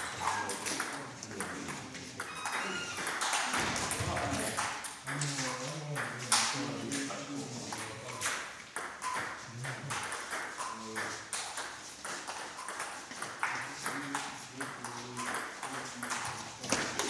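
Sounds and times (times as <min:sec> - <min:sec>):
ping-pong ball bouncing on table: 0:00.0 - 0:06.5, 0:07.7 - 0:17.0
ping-pong ball hitting paddles: 0:00.0 - 0:17.0.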